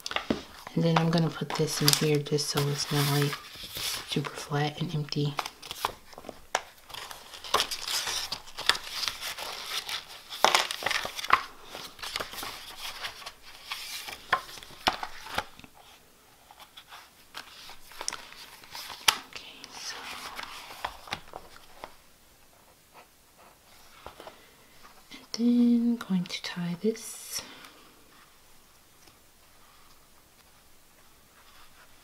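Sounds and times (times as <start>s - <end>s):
paper rustling and sliding: 0.0s - 19.2s, 19.8s - 22.0s.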